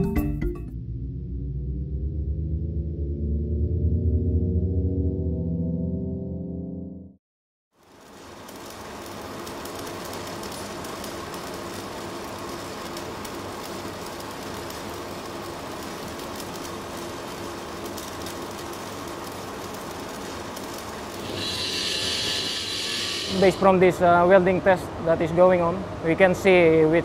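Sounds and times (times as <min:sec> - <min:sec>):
arc welding crackle and sizzle: 0:07.7 - 0:27.0.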